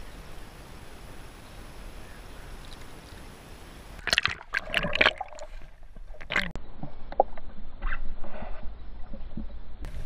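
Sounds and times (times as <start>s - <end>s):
water splashing and sloshing: 3.9s - 8.4s.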